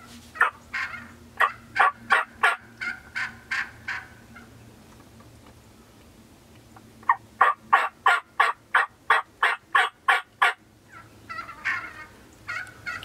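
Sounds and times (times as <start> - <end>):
turkey yelping: 0.4 - 4.5, 7.0 - 13.0.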